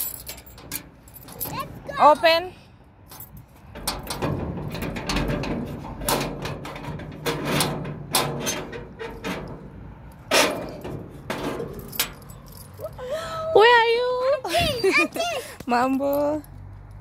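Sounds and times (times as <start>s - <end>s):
keys jangling: 0.0s - 1.7s, 11.7s - 13.1s
metal lock clicking and rattling: 0.0s - 2.2s, 3.1s - 13.0s.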